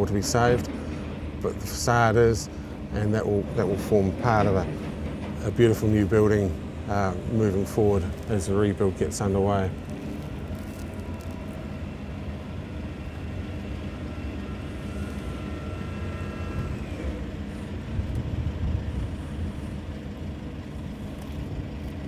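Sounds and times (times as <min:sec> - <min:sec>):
vehicle engine and road rumble: 0:00.0 - 0:22.0
faint high whine: 0:06.1 - 0:21.4.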